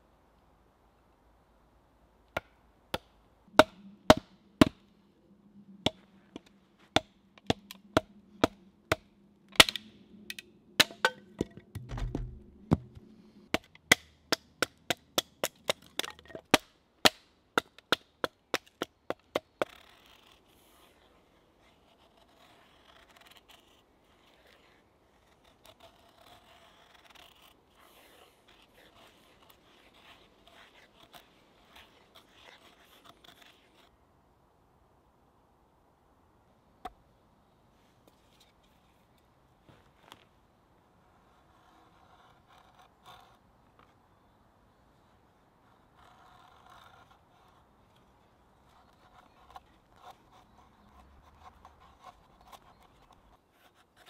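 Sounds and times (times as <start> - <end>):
knife shaving wood: 19.5 - 33.9, 41.3 - 43.4, 45.6 - 54.0.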